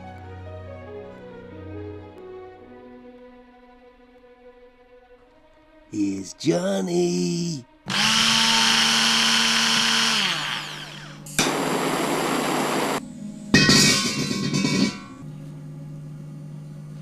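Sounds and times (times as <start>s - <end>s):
small electric motor running: 7.9s - 13.0s.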